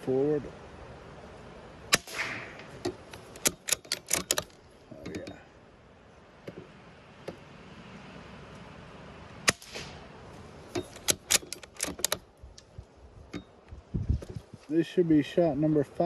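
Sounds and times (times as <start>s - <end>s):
rifle shot with ring: 1.9s - 2.7s, 9.4s - 10.1s
rifle bolt metallic clicks: 1.9s - 5.4s, 10.7s - 12.7s.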